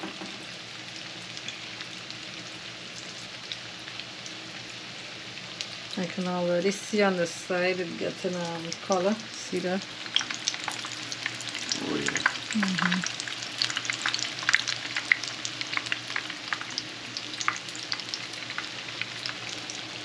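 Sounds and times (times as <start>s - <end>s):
food sizzling in oil: 0.0s - 20.0s.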